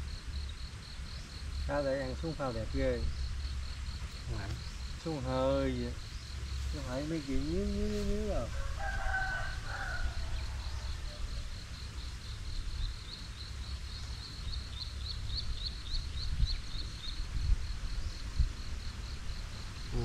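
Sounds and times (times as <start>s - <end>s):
low outdoor rumble: 0.0s - 20.0s
rooster crowing: 8.2s - 11.8s.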